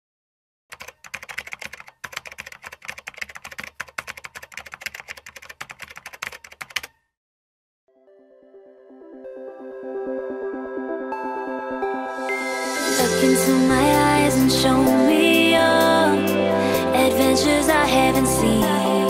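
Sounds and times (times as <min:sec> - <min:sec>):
keyboard typing clatter: 0:00.7 - 0:07.0
soft music: 0:07.9 - 0:19.0.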